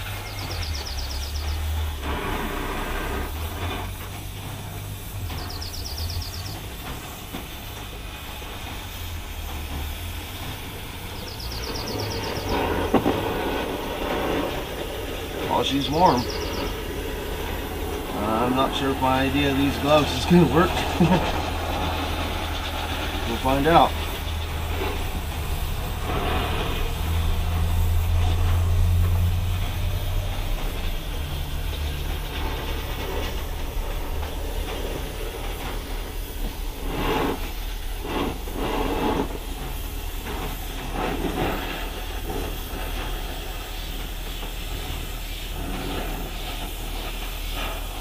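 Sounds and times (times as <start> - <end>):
low hum: 0.0 - 43.6
gas torch hissing roar: 0.0 - 48.0.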